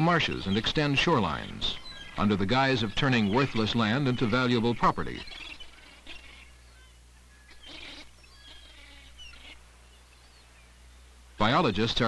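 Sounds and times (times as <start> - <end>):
faint bird chirps: 0.0 - 11.6
steady low hum: 0.0 - 12.0.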